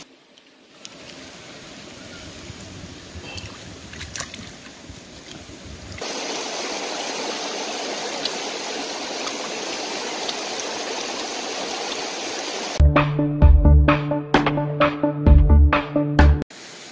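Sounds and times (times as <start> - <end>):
stream running over stones: 0.0 - 12.8.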